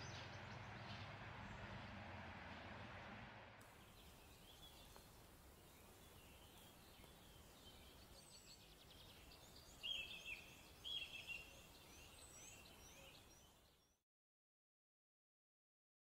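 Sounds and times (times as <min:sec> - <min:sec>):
small birds chirping: 0:03.6 - 0:14.0.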